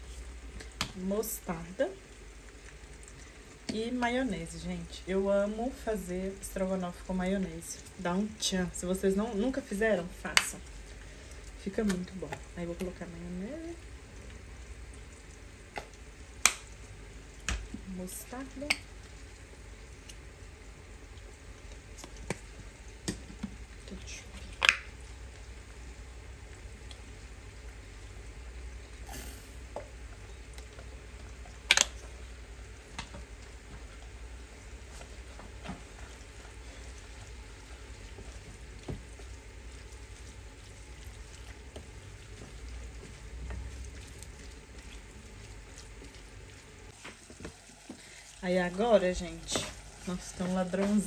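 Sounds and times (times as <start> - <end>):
potatoes sizzling in oil: 0.0 - 51.0.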